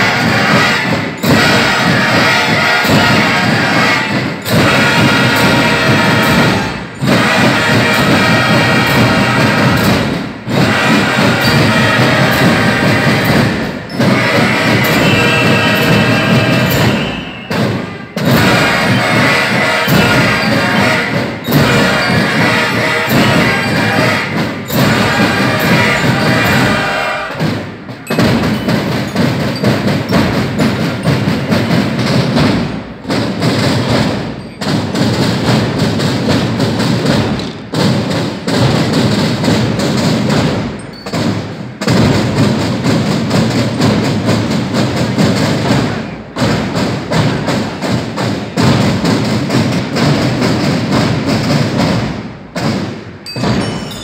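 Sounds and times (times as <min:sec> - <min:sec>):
bugles playing: 0:00.0 - 0:44.1
drum corps cadence: 0:00.0 - 0:54.0.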